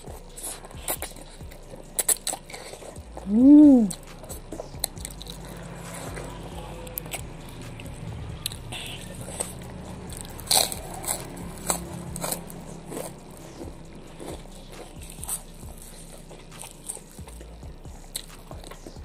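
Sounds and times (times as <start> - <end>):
wet mouth clicks while chewing: 0.0 - 19.0
crunchy bites: 8.4 - 17.5.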